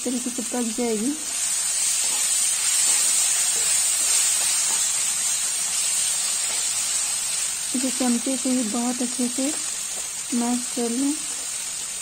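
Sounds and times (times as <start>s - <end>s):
food sizzling in oil: 0.0s - 12.0s.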